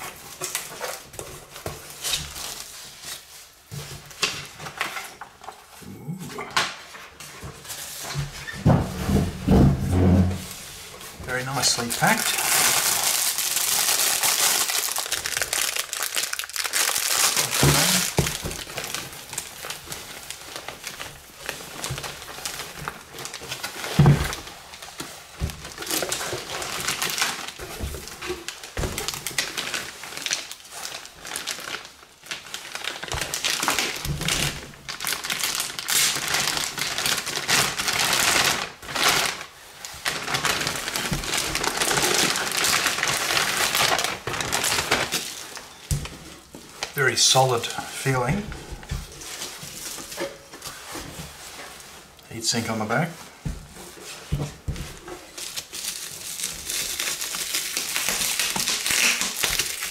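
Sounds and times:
plastic and bubble wrap crinkling: 0.0s - 59.9s
dull thumps: 8.2s - 10.6s.

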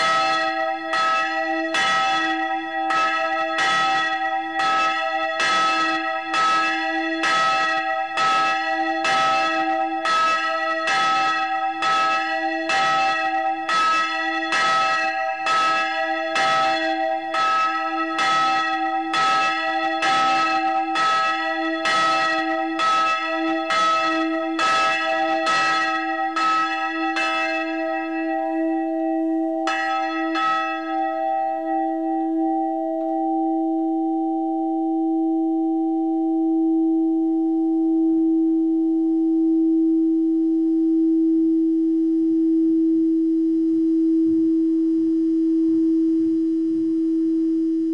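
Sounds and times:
church bell ringing: 0.0s - 36.5s
bell hum: 0.0s - 46.8s.

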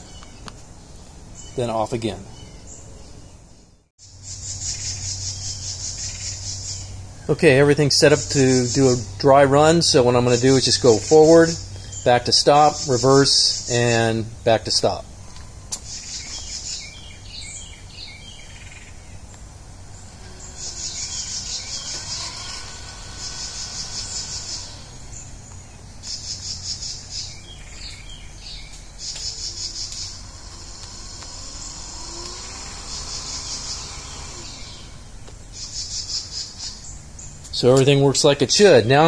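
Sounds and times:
electric motor whine: 15.1s - 37.2s
crickets trilling: 15.3s - 37.4s.

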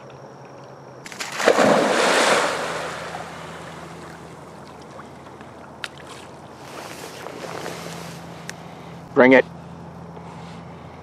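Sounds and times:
dog splashing into river: 1.1s - 5.0s
water washing and settling: 1.1s - 6.5s.

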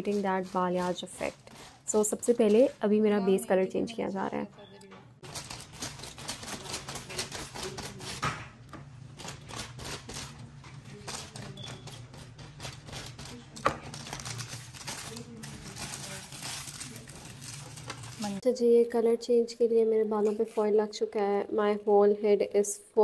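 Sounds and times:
aluminium foil crinkling: 0.0s - 2.7s, 5.2s - 8.2s, 9.2s - 18.4s.

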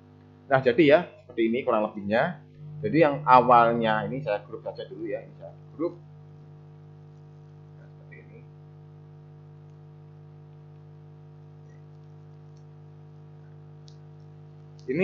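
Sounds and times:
low electrical hum: 0.0s - 15.0s
faint mouse clicks: 10.5s - 15.0s.

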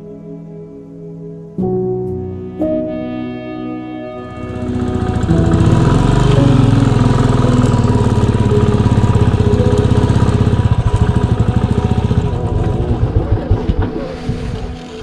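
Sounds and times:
motorcycle engine at low revs: 4.3s - 15.0s.

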